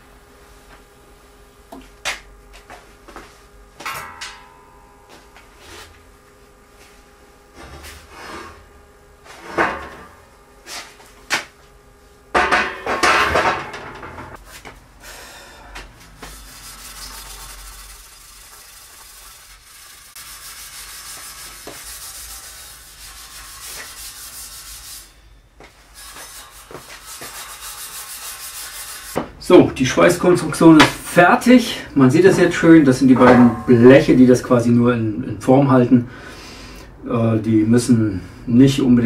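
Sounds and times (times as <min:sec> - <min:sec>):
grinder hissing on steel welds: 0:16.3 - 0:25.2
loud metal clanking: 0:32.3 - 0:34.4.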